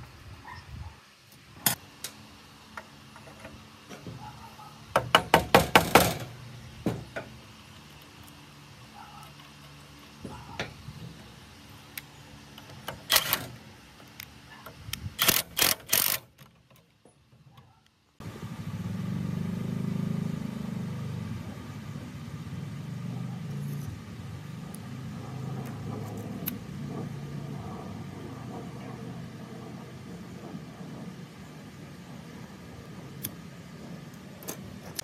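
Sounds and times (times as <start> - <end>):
sharp metallic clicks: 11.9 - 17.0.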